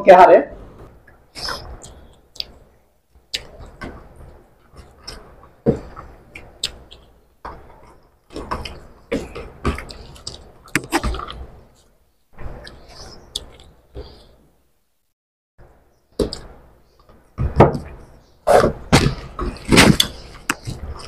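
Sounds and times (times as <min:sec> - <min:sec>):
chewing and lip smacks: 0:12.6 - 0:13.8.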